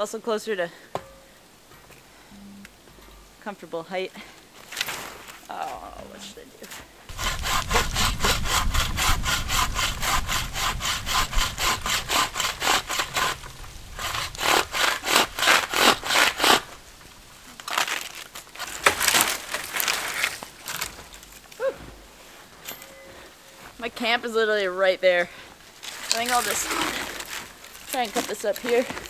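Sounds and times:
saw cutting dry wood: 0:07.1 - 0:16.8, 0:26.0 - 0:29.0.

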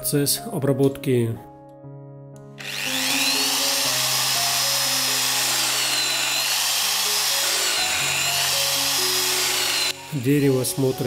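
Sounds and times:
drill press whining: 0:02.6 - 0:10.2.

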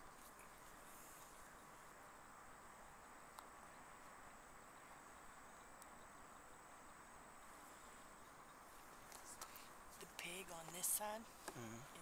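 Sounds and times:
faint crickets chirping: 0:00.0 - 0:12.0
faint tick: 0:03.3 - 0:03.5.

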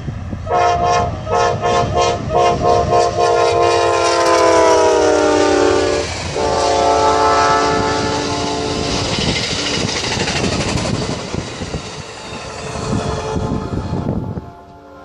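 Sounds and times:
locomotive air horn blasts: 0:00.4 - 0:09.0, 0:13.1 - 0:15.0
train wheels clacking on rails: 0:01.5 - 0:14.8.

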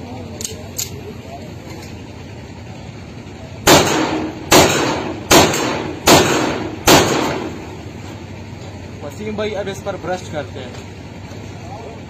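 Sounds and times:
pistol shots echoing: 0:03.6 - 0:07.6.

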